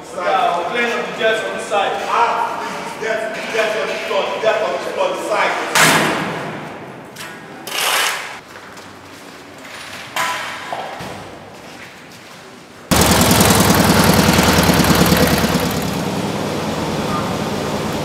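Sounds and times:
sharp knocks echoing in a hall: 0:05.6 - 0:07.6, 0:10.2 - 0:11.7
loud rattling machine noise: 0:12.9 - 0:18.0.

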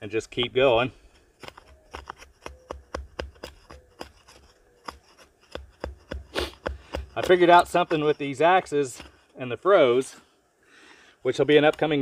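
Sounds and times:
axe blade scraping bark: 0:03.4 - 0:09.2.

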